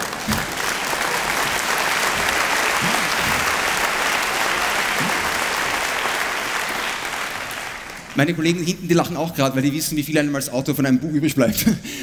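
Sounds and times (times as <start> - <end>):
large audience applauding: 0.0 - 9.3.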